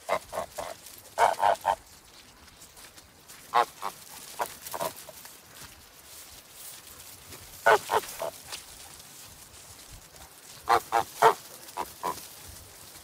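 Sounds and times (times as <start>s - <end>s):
geese honking: 0.0s - 1.8s, 3.5s - 5.0s, 7.6s - 8.4s, 10.6s - 12.3s.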